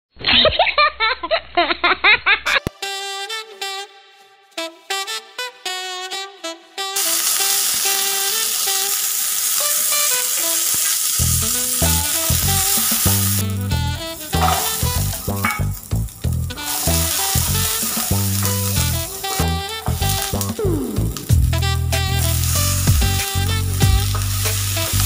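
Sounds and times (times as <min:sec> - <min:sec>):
spices sizzling in hot oil: 0:07.0 - 0:25.0
background music with melody: 0:09.6 - 0:25.0
steady bass beat: 0:11.2 - 0:25.0.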